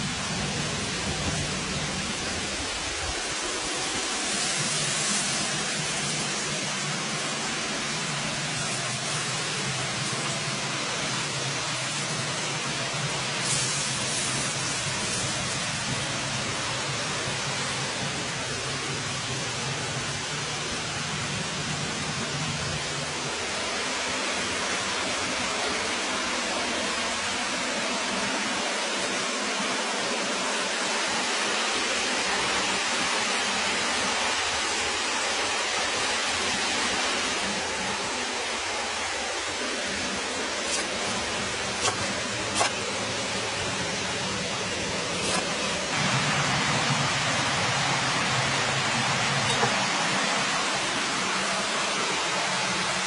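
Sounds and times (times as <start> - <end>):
steady hiss: 0.0 - 53.0
cleaver chopping on cutting board: 41.8 - 42.8.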